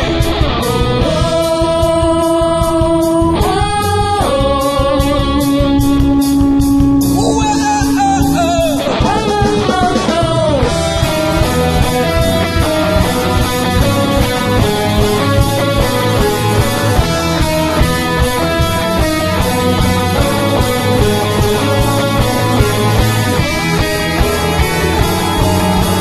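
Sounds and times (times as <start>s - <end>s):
man singing long held notes: 0.0s - 10.8s
drum kit: 0.0s - 26.0s
electric guitars: 0.0s - 26.0s.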